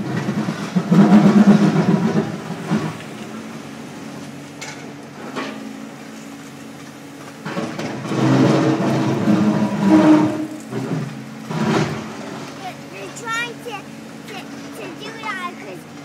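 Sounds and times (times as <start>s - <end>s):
bucket scraping and knocking ice: 0.0s - 3.0s, 7.5s - 12.4s
diesel engine working under load: 0.0s - 16.0s.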